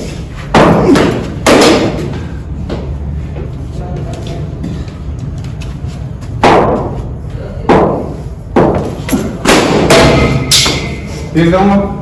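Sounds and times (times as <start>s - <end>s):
balls striking hard surface: 0.4s - 3.5s, 6.2s - 11.0s.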